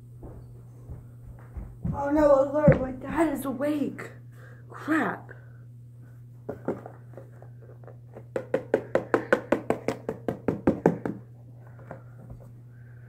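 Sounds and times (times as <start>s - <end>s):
hand tapping cardboard box: 8.1s - 11.3s.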